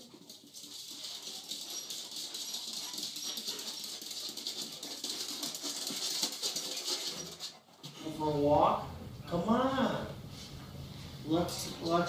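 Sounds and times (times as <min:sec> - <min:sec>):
dog claws clicking on wooden floor: 0:00.0 - 0:07.7.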